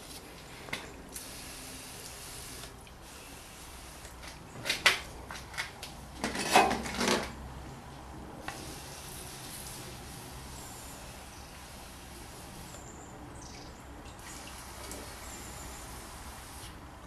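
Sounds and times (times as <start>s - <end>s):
aerosol spray hiss: 1.2s - 4.1s, 8.4s - 12.8s.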